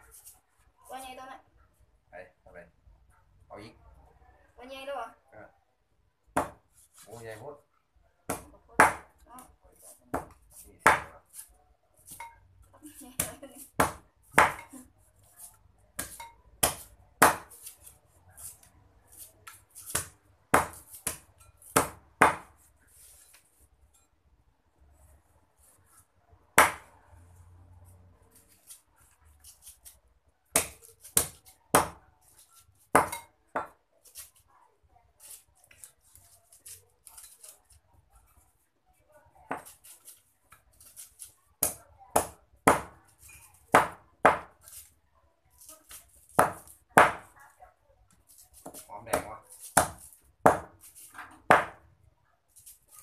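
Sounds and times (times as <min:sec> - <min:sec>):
cleaver chopping on wooden block: 0:06.4 - 0:06.6, 0:08.3 - 0:09.1, 0:10.1 - 0:11.2, 0:13.2 - 0:14.7, 0:16.0 - 0:17.6, 0:19.4 - 0:22.5, 0:26.6 - 0:26.9, 0:30.5 - 0:32.0, 0:32.9 - 0:33.8, 0:39.5 - 0:39.8, 0:41.6 - 0:43.0, 0:43.7 - 0:44.7, 0:46.3 - 0:47.3, 0:48.6 - 0:50.8, 0:51.5 - 0:51.8.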